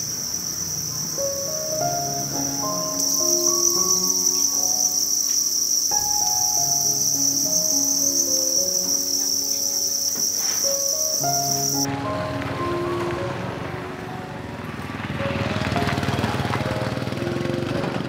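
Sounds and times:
crickets chirping: 0:00.0 - 0:13.4
light background music: 0:01.1 - 0:18.0.

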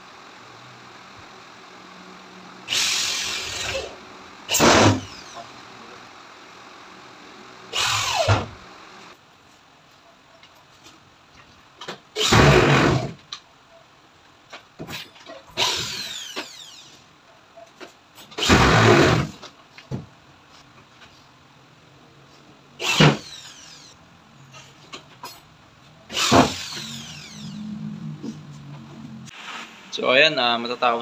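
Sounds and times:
electric drill running: 0:02.7 - 0:05.4, 0:07.7 - 0:09.1, 0:12.2 - 0:13.2, 0:15.6 - 0:17.0, 0:18.4 - 0:19.4, 0:22.8 - 0:24.0, 0:26.1 - 0:27.7.

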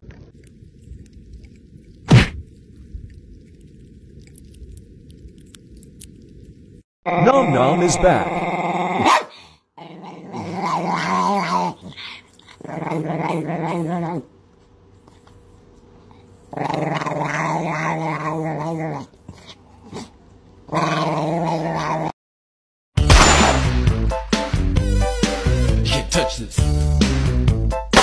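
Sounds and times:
small dog growling: 0:09.8 - 0:14.3, 0:16.0 - 0:22.2.

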